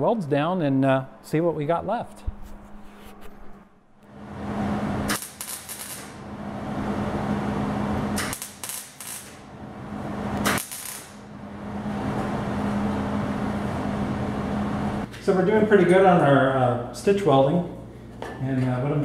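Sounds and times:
steady low hum: 0:00.0 - 0:19.0
welder arc crackling: 0:05.0 - 0:06.2, 0:08.2 - 0:09.5, 0:10.4 - 0:11.3.

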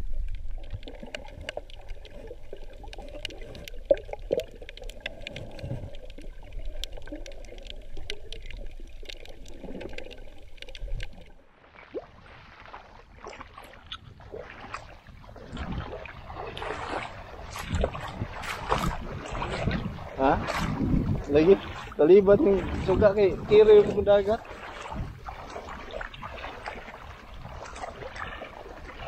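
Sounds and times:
underwater crackle of clicks: 0:00.0 - 0:12.0, 0:13.3 - 0:15.8, 0:16.6 - 0:21.9
feet wading through shallow water: 0:00.0 - 0:29.0.

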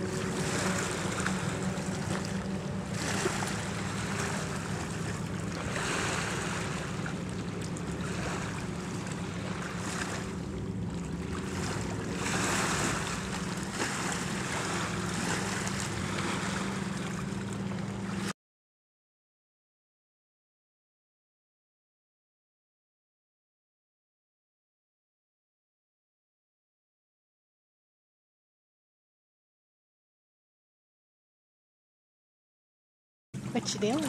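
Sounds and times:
wind: 0:00.0 - 0:18.4, 0:33.4 - 0:34.0
small waves lapping on rocks: 0:00.3 - 0:10.3, 0:11.1 - 0:17.4, 0:33.5 - 0:34.0.

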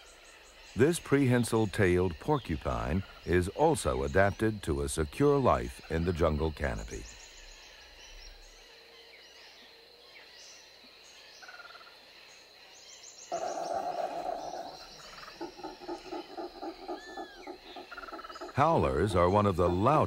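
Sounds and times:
forest ambience: 0:00.0 - 0:20.0
monkeys howling and grunting: 0:13.3 - 0:19.8.

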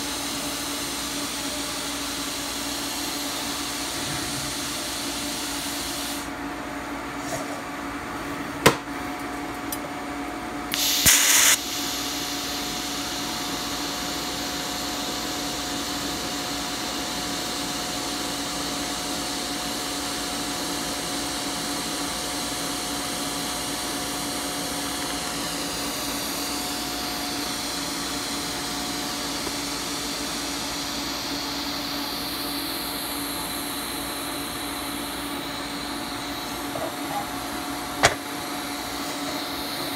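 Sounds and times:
welding arc hiss: 0:04.5 - 0:06.3, 0:10.7 - 0:36.8
welding arc crackling: 0:10.7 - 0:16.0.

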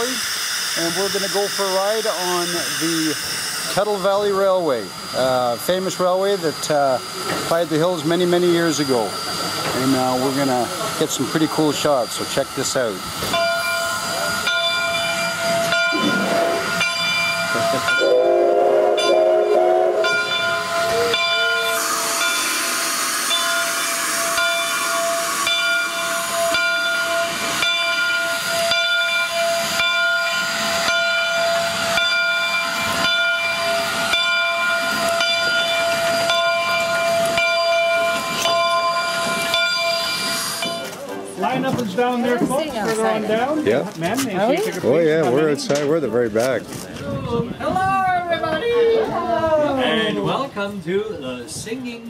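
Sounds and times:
loud rush of steam: 0:00.0 - 0:42.6
steam locomotive whine and hiss: 0:00.0 - 0:43.8
train whistle blast: 0:13.3 - 0:40.9.

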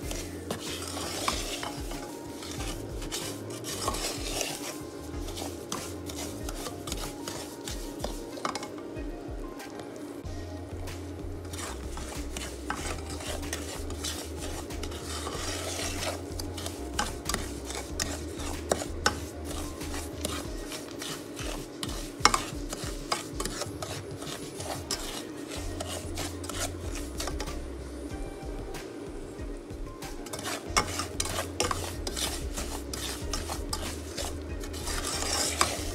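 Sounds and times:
spoon tapping pan: 0:00.0 - 0:09.8, 0:11.4 - 0:27.6
spoon scraping pan: 0:00.0 - 0:28.1, 0:29.6 - 0:35.9.

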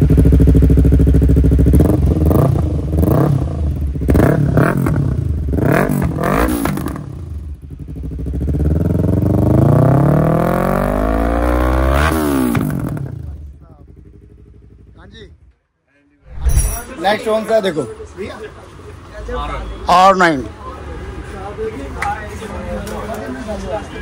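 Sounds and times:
motorcycle engine revving: 0:00.0 - 0:15.5.

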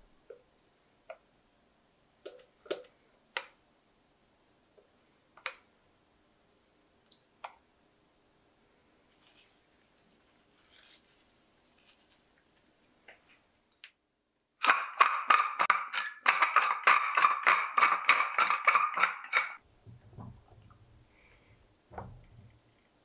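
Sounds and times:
pepper mill grinding: 0:14.6 - 0:19.6.

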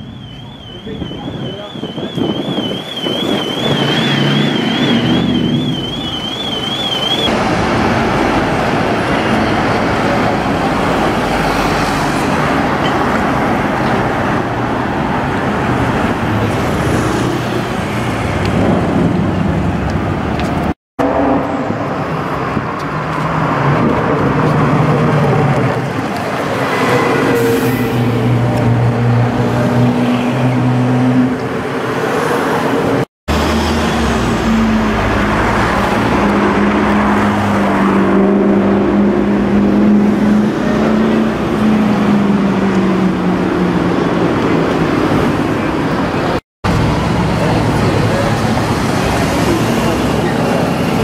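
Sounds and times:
fast-warbling electronic alarm: 0:00.0 - 0:07.3
passing cars and buses: 0:00.0 - 0:51.0.

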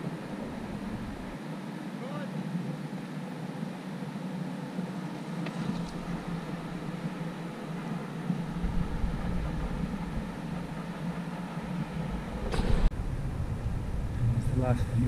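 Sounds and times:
wind rushing across microphone: 0:04.7 - 0:15.0.

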